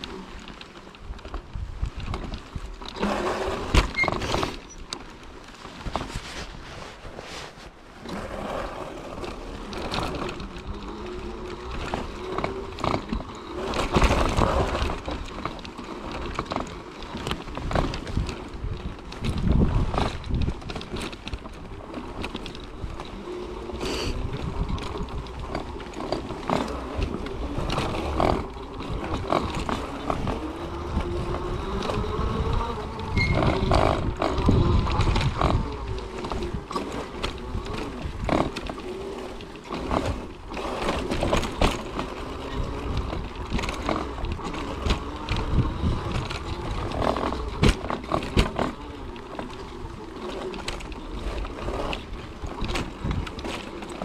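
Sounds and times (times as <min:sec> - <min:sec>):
tyres rumbling on trail: 0:00.0 - 0:54.0
electric motor whine: 0:22.7 - 0:52.2
knocks and rattles: 0:24.2 - 0:54.0.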